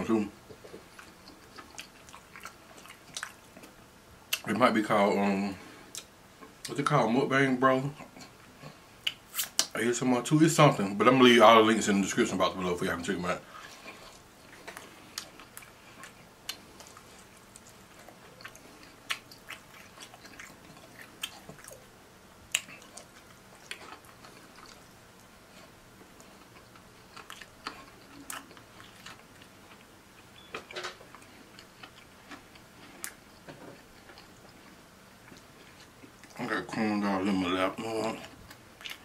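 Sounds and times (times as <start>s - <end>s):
chewing food: 0.5s - 4.5s, 13.4s - 21.9s, 22.5s - 36.5s, 37.8s - 39.0s.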